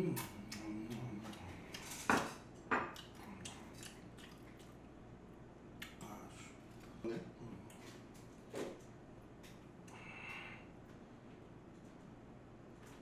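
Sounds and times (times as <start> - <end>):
faint eating clicks: 0.0 - 7.0.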